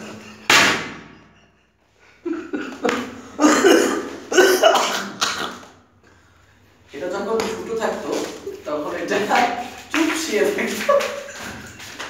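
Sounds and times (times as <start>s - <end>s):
man laughing: 0.0s - 0.5s, 1.1s - 5.7s, 10.7s - 12.0s.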